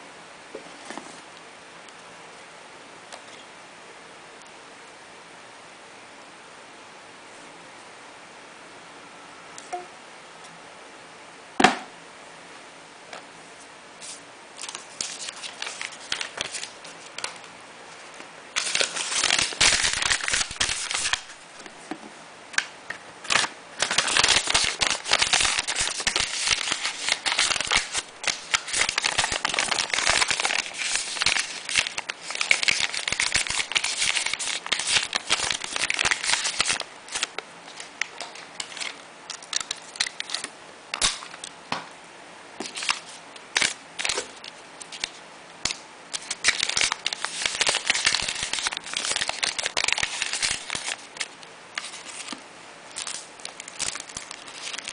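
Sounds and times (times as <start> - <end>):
packaging bag crinkling: 14.6 - 17.4, 18.6 - 21.4, 23.3 - 40.4, 46.2 - 54.9.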